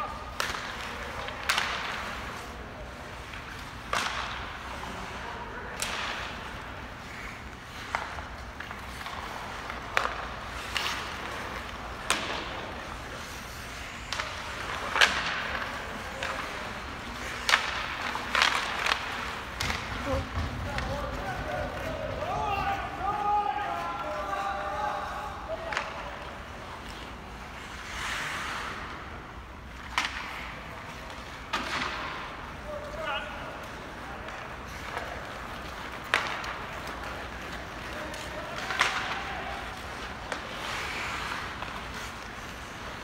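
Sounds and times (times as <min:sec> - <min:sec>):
hockey sticks cracking on puck: 0:00.0 - 0:43.0
steady rink hiss: 0:00.0 - 0:43.0
puck hitting the boards: 0:07.9 - 0:12.7, 0:31.4 - 0:32.3, 0:34.9 - 0:37.4.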